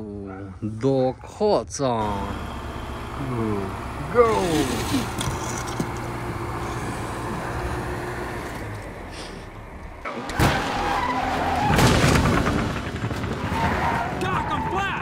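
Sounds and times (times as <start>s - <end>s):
low engine-like hum: 2.0s - 10.2s
race cars at speed: 2.0s - 14.2s
tyres skidding: 2.0s - 15.0s
bump: 2.3s - 15.0s.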